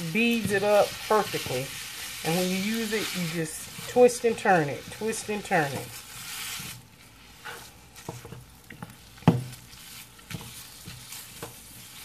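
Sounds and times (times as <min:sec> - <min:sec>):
tool scraping a pan: 0:00.0 - 0:06.8, 0:07.4 - 0:12.0
meat sizzling in a skillet: 0:00.0 - 0:12.0.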